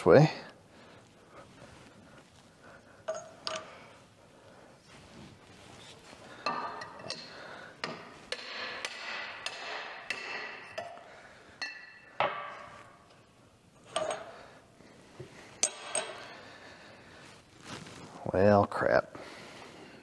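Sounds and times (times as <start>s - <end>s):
metal parts clinking: 3.1s - 3.7s
hammer striking metal pipe: 6.5s - 11.0s, 11.6s - 12.8s.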